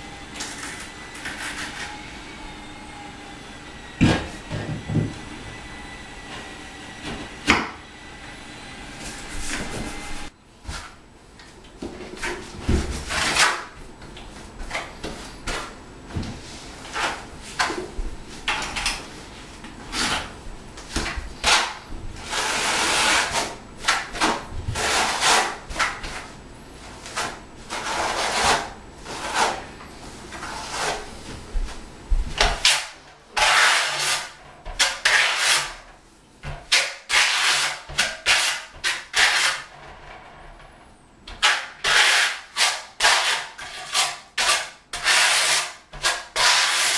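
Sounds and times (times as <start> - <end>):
trowel scraping mortar: 27.1 - 29.7, 33.4 - 35.8, 41.4 - 46.9.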